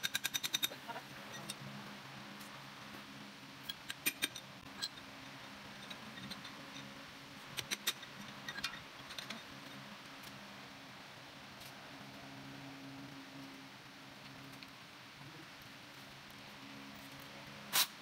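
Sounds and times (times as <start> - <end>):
faint steady hum: 0.0 - 18.0
metal tools clinking on engine: 5.8 - 6.9.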